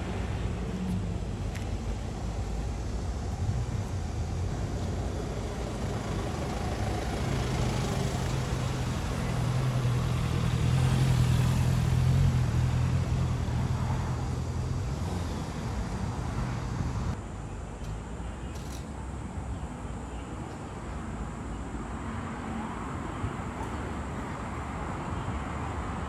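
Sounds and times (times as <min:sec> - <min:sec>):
car engine hum passing: 0:00.0 - 0:17.2.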